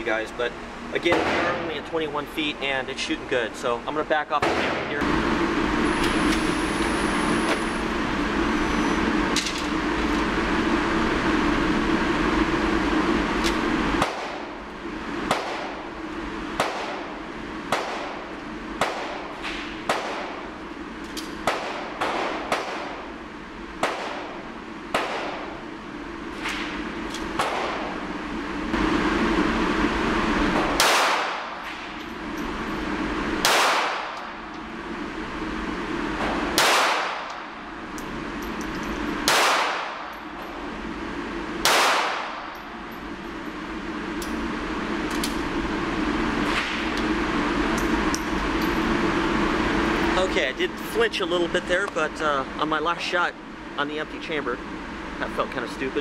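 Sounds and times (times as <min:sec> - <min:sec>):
pistol shots indoors: 0:15.3 - 0:15.8, 0:16.6 - 0:17.1, 0:17.7 - 0:20.4, 0:21.4 - 0:23.0, 0:23.8 - 0:25.5, 0:27.4 - 0:27.9, 0:30.6 - 0:31.6, 0:33.4 - 0:34.4, 0:36.5 - 0:37.4, 0:39.2 - 0:40.1, 0:41.6 - 0:42.5.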